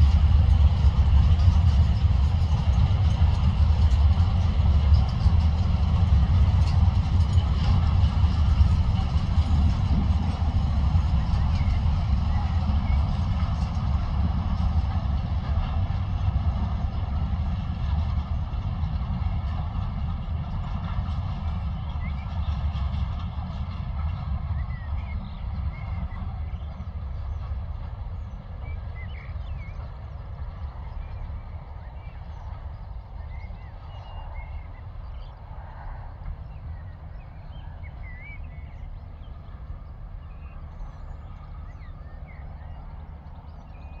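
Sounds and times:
freight train wheels rumbling on rails: 0:00.0 - 0:44.0.

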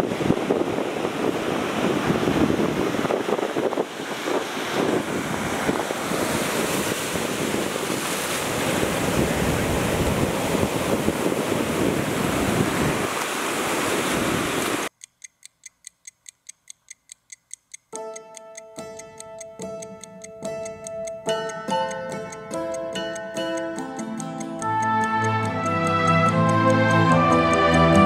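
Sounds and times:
surf breaking on a beach: 0:00.0 - 0:14.9
wind buffeting microphone: 0:00.0 - 0:14.9
clock-like ticking: 0:14.9 - 0:28.0.

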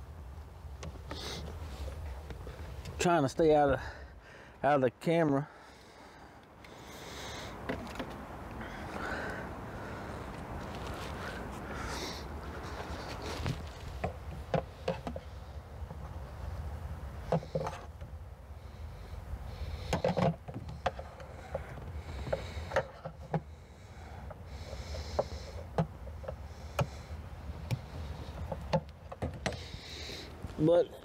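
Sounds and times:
low steady hum: 0:00.0 - 0:31.0
hands and tools clicking: 0:19.8 - 0:23.5.

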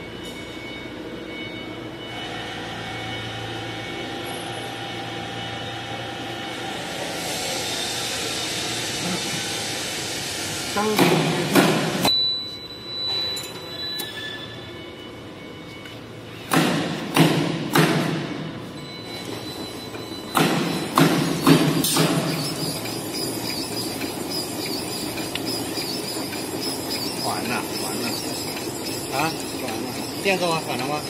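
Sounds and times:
pneumatic cylinder thuds: 0:10.9 - 0:12.1, 0:16.5 - 0:18.5, 0:20.3 - 0:22.8
steady machine hum: 0:14.6 - 0:31.0.

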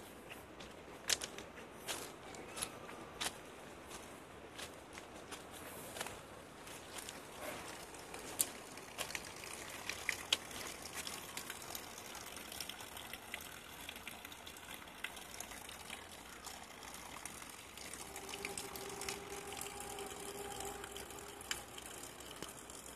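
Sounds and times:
water pouring and splashing: 0:06.6 - 0:22.9
steady pitched hum: 0:17.1 - 0:22.9.

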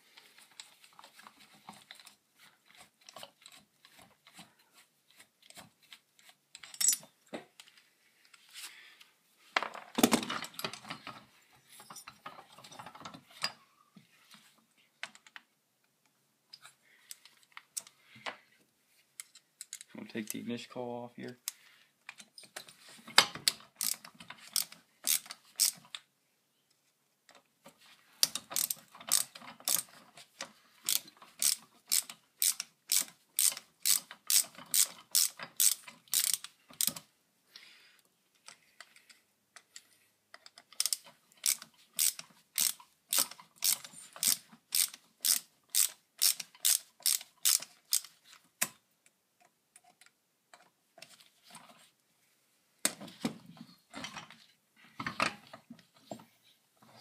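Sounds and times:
ratcheting screwdriver clicking: 0:23.8 - 0:25.9, 0:28.2 - 0:29.9, 0:30.9 - 0:37.0, 0:40.7 - 0:48.2.

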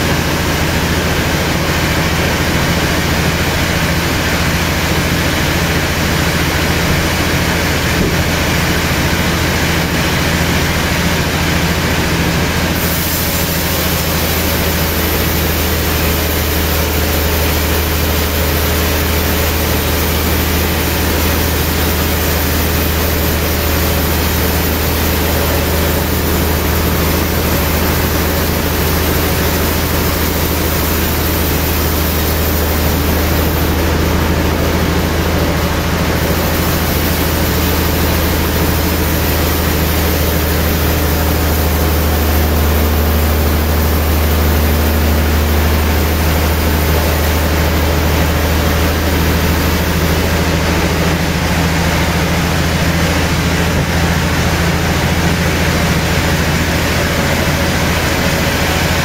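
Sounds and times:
band sawmill running: 0:00.0 - 0:59.0.

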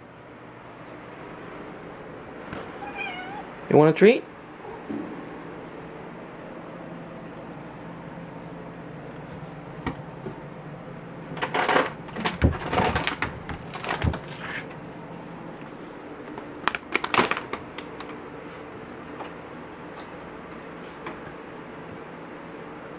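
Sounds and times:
foil pouch crinkling: 0:13.0 - 0:14.4, 0:16.6 - 0:18.1.

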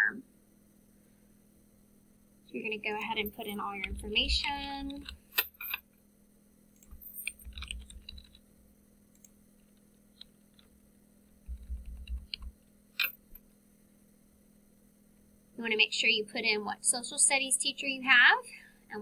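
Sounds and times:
computer keyboard typing: 0:06.8 - 0:08.4, 0:11.4 - 0:12.5.

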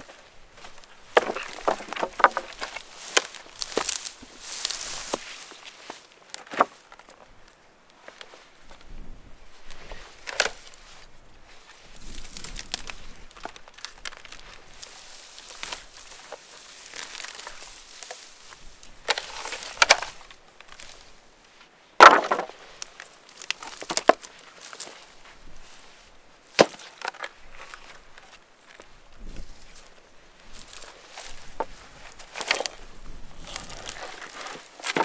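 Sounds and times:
wooden boards knocking: 0:01.2 - 0:02.7, 0:22.0 - 0:22.5.

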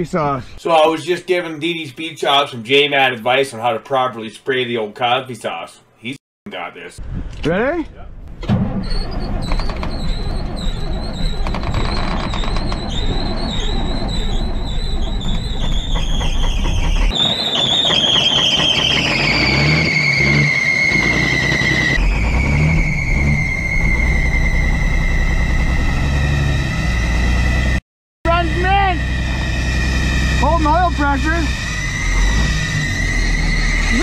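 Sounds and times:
diesel engine rumble: 0:08.1 - 0:34.0
engine belt squealing: 0:08.6 - 0:34.0.

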